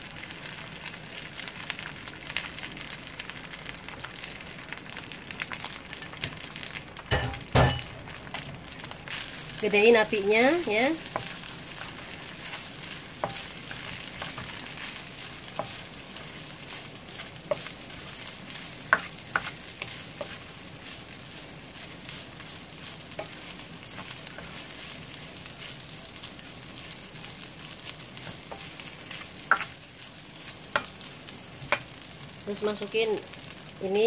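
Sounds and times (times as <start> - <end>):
rice sizzling in a frying pan: 0.0 - 34.0
spatula tapping on pan: 7.1 - 7.9, 29.5 - 29.7.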